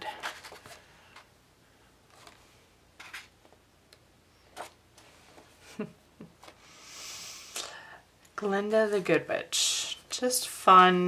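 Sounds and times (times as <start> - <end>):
paper pages rustling: 0.1 - 1.3.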